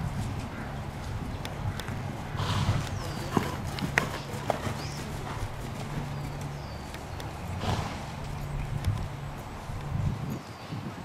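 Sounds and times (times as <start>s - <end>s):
hoofbeats on soft sand: 0.0s - 10.4s
sharp clicks: 6.8s - 7.4s.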